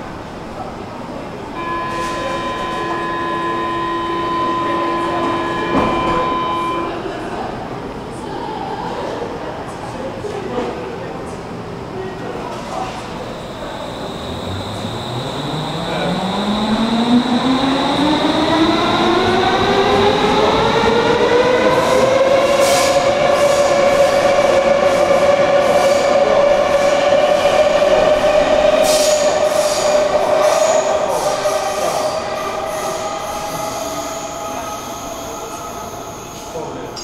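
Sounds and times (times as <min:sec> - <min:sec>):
train motors whining: 0:13.4 - 0:22.1.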